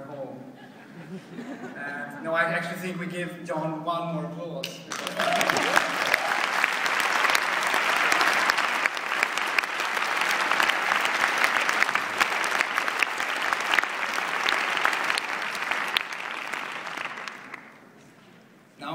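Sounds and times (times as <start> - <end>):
audience applauding: 4.9 - 17.9.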